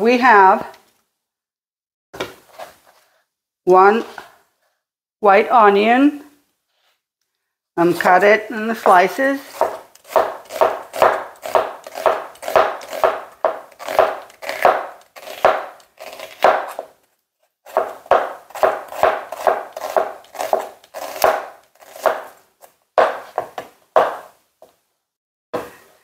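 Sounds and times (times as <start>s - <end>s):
knife slicing onion on cutting board: 8.8s - 17.0s, 17.6s - 24.8s.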